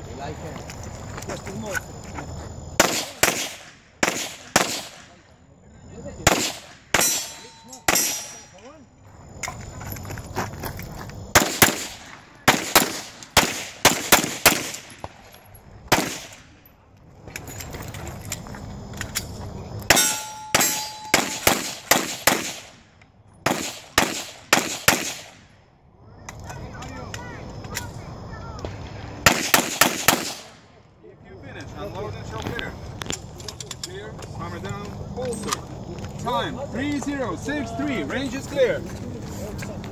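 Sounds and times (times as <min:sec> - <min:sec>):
rapid pistol shots: 0:02.8 - 0:05.2, 0:06.2 - 0:08.4, 0:11.4 - 0:15.2, 0:15.9 - 0:16.5, 0:19.9 - 0:22.8, 0:23.4 - 0:25.4, 0:29.2 - 0:30.6
bullet clanging on steel target: 0:07.0 - 0:08.7, 0:19.9 - 0:21.5.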